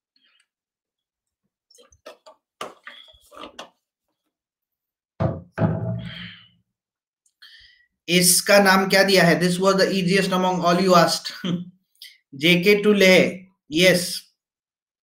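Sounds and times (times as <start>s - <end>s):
thump: 5.2s - 6.3s.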